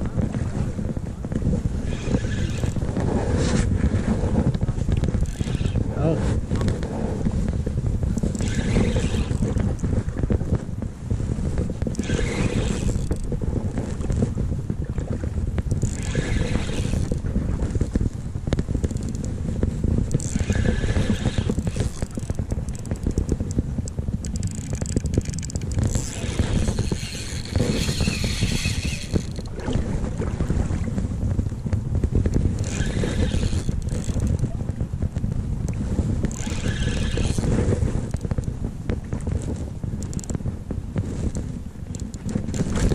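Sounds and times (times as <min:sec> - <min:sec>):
wind rumble on microphone: 0:00.0 - 0:42.9
fishing reel whirring: 0:01.8 - 0:02.9, 0:05.0 - 0:05.9, 0:08.2 - 0:09.9, 0:11.9 - 0:13.3, 0:15.7 - 0:17.3, 0:18.8 - 0:19.3, 0:20.1 - 0:23.6, 0:24.2 - 0:29.6, 0:32.6 - 0:34.4, 0:36.2 - 0:38.4, 0:40.0 - 0:40.4.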